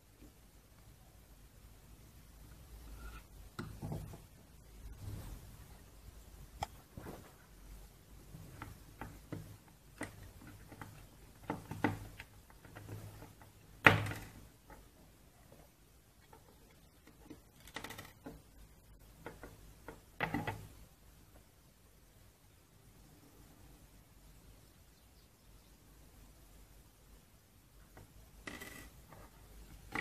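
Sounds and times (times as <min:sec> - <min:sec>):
plastic parts clicking and knocking: 0:03.5 - 0:04.4, 0:08.2 - 0:20.8, 0:27.9 - 0:30.0.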